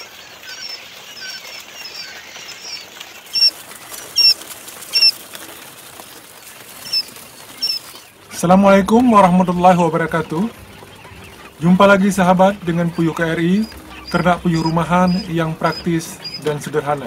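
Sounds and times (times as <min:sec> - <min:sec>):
chicks peeping: 0:00.0 - 0:17.0.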